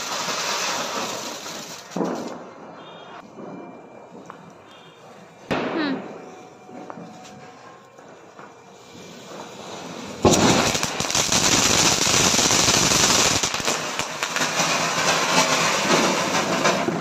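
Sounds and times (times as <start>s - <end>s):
firework sparks hissing and crackling: 0.0s - 2.8s, 5.7s - 17.0s
firework whoosh: 0.0s - 4.2s, 8.8s - 17.0s.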